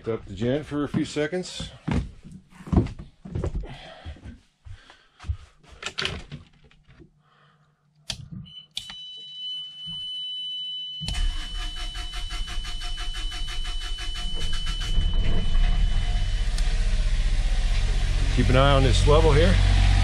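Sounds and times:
steady high beep: 0:08.5 - 0:17.2
generator engine cranking and running: 0:11.1 - 0:20.0.

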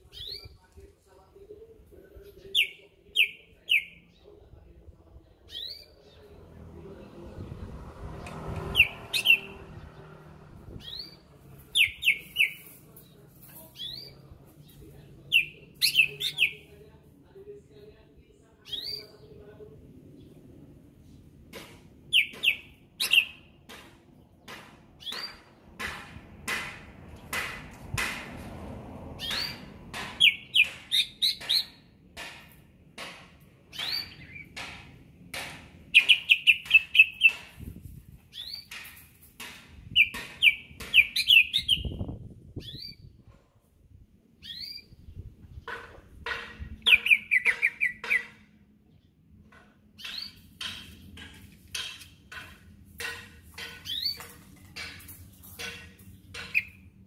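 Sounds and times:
bird singing trilled phrases: 0:00.1 - 0:00.6, 0:05.4 - 0:06.4, 0:08.7 - 0:09.6, 0:10.8 - 0:12.7, 0:13.8 - 0:16.7, 0:18.7 - 0:19.3, 0:36.0 - 0:37.4, 0:38.3 - 0:38.8, 0:39.9 - 0:43.1, 0:44.4 - 0:45.3, 0:46.8 - 0:49.1, 0:53.8 - 0:54.2
sharp clicking bird notes: 0:35.9 - 0:37.7, 0:46.3 - 0:48.5.

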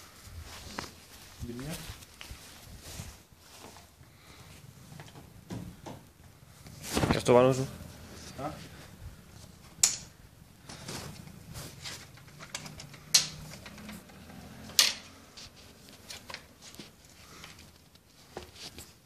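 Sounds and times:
dart gun handling clicks and knocks: 0:12.1 - 0:15.2.

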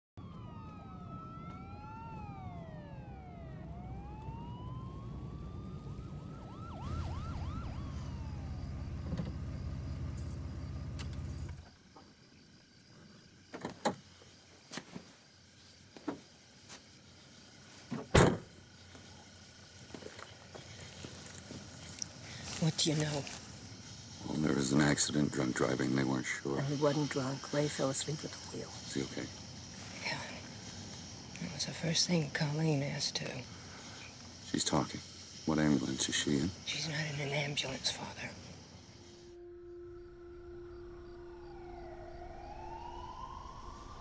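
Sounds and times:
police sirens wailing: 0:00.2 - 0:11.6, 0:38.9 - 0:44.0
car driving rumble: 0:00.2 - 0:12.1.

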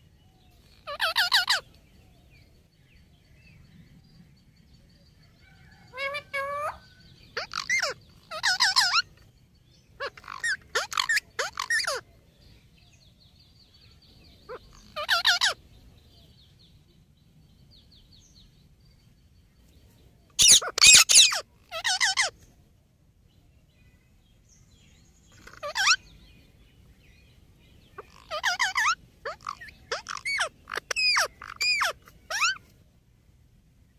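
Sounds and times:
parakeets screeching: 0:00.7 - 0:01.6, 0:05.9 - 0:09.2, 0:10.0 - 0:12.0, 0:14.5 - 0:15.6, 0:20.4 - 0:22.3, 0:25.3 - 0:26.1, 0:27.9 - 0:32.6.

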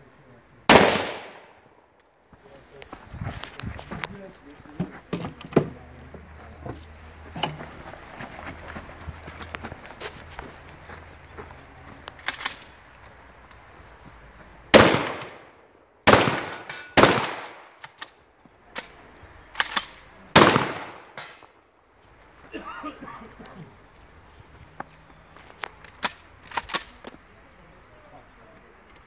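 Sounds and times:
gunshots echoing: 0:00.7 - 0:01.8, 0:14.7 - 0:18.0, 0:20.4 - 0:21.5.

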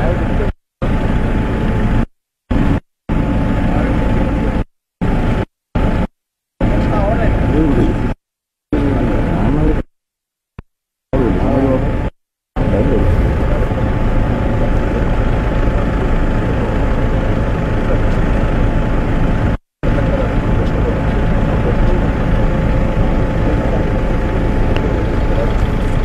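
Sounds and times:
heavy engine idling: 0:12.6 - 0:26.0.

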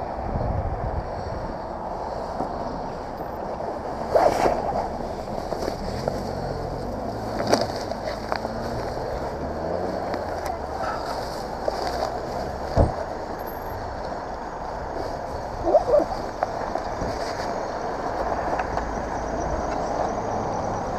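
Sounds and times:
vehicle engine idling: 0:04.8 - 0:20.8.

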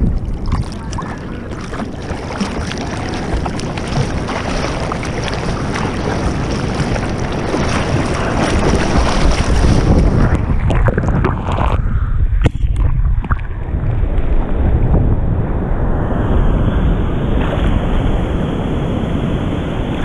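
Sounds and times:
water splashing against board: 0:00.0 - 0:11.8
wind buffeting microphone: 0:00.0 - 0:20.0.

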